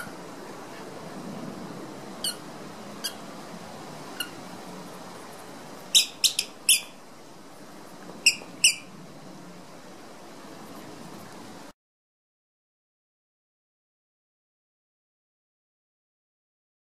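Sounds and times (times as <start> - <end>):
squeaky dog toy squeaking: 8.3 - 8.8.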